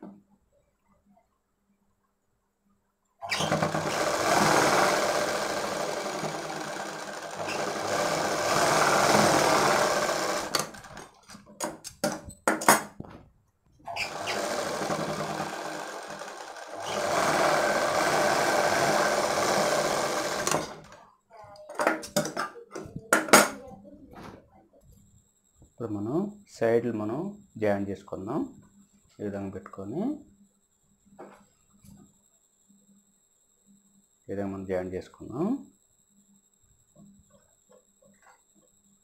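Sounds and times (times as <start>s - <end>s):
sewing machine stitching: 3.2s - 11.3s, 13.9s - 21.0s.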